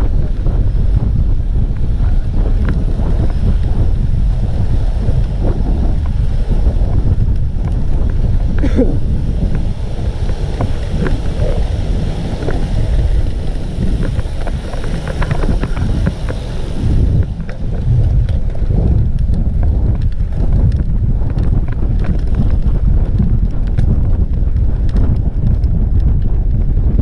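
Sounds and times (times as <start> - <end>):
bike clicks and rattles: 0.0 - 27.0
wind buffeting microphone: 0.0 - 27.0
high hiss: 1.0 - 17.5.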